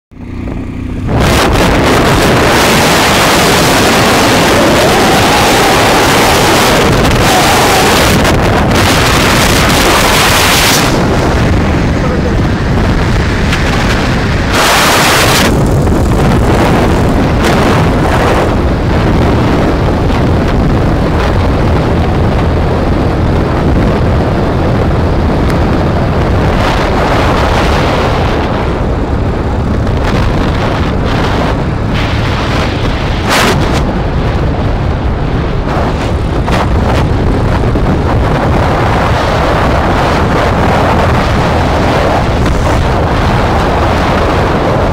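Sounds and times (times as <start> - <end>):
motorcycle engine running: 0.1 - 44.9
wind buffeting microphone: 0.2 - 44.9.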